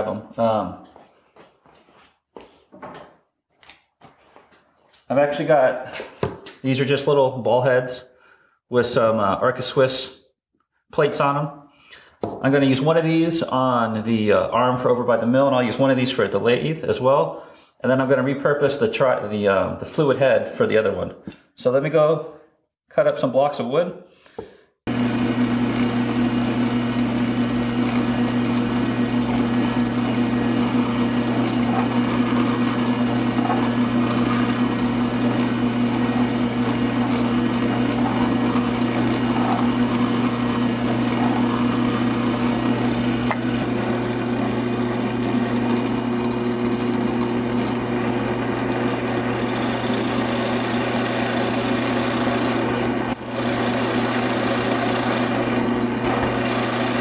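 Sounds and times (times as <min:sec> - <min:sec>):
drill bit boring into wood: 0:24.9 - 0:57.0
drill press motor running: 0:24.9 - 0:57.0.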